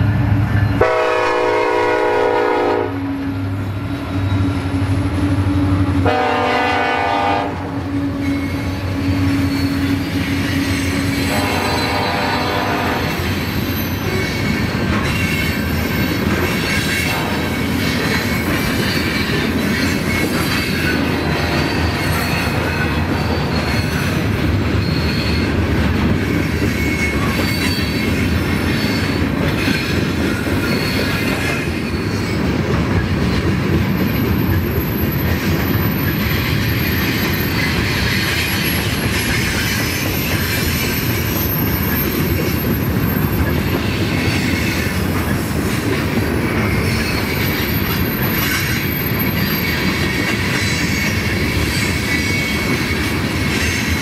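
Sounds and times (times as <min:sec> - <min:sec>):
train wheels rumbling on rail: 0:00.0 - 0:54.0
high-pitched wheel squeals: 0:08.0 - 0:17.1, 0:18.0 - 0:25.6, 0:26.2 - 0:32.4, 0:34.0 - 0:45.4, 0:46.6 - 0:54.0.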